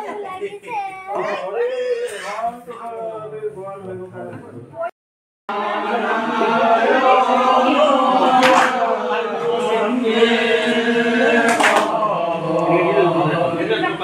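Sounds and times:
men chanting in unison: 5.5 - 14.0.

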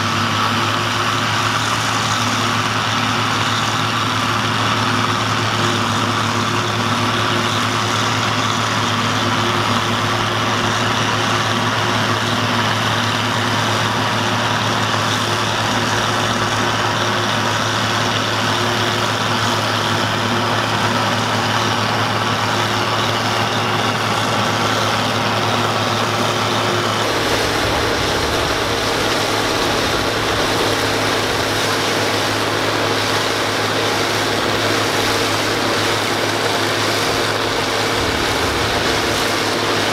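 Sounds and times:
tractor engine under load: 0.0 - 39.9
deep rumble: 26.9 - 32.5, 37.1 - 39.9.

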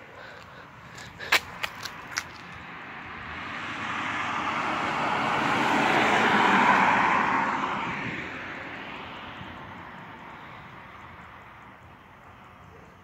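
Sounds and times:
car driving past: 2.6 - 11.8.

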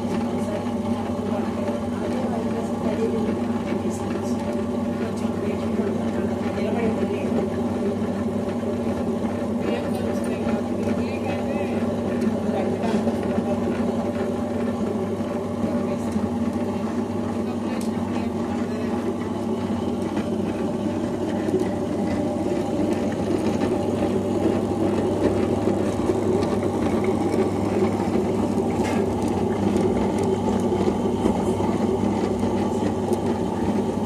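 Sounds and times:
grinder motor humming: 0.0 - 34.0.

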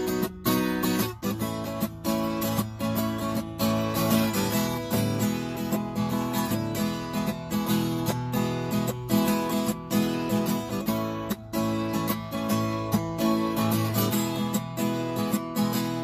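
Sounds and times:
acoustic guitar strummed hard: 0.0 - 16.0.

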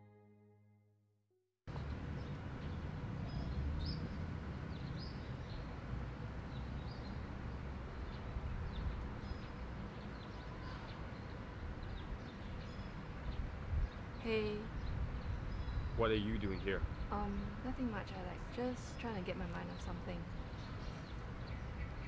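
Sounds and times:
low rumble of wind or traffic: 1.7 - 22.0
birds chirping: 6.5 - 22.0.

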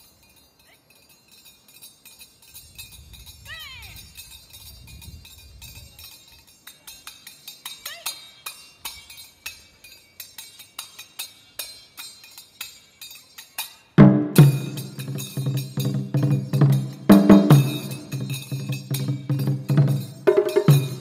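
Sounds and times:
hand cymbals clicking: 0.0 - 21.0
taiko drums: 14.0 - 21.0.

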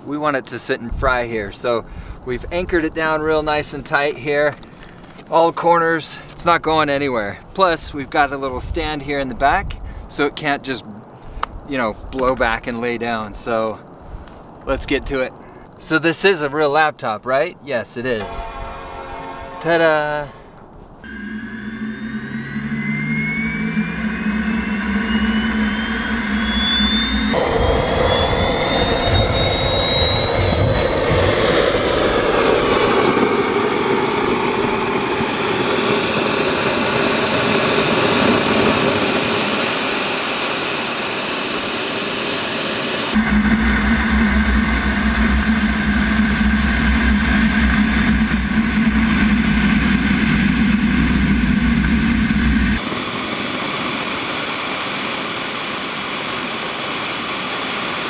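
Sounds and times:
jet turbine engine roaring: 21.0 - 58.0.

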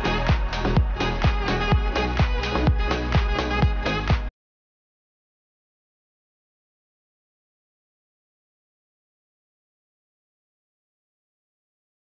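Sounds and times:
electronic dance music: 0.0 - 4.3.

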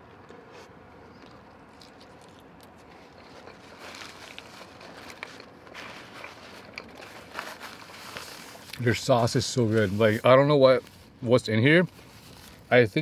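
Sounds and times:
chewing fried food: 0.0 - 8.9
paper napkin rustling: 2.9 - 13.0.

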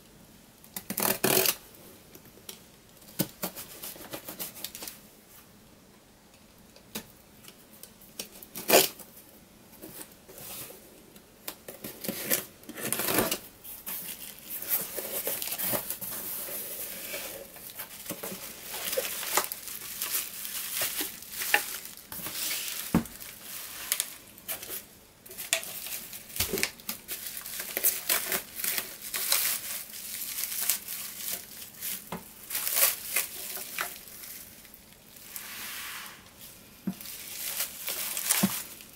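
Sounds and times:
plastic wrapping tearing: 0.8 - 1.6, 8.5 - 9.0, 12.0 - 35.4, 37.0 - 38.9.

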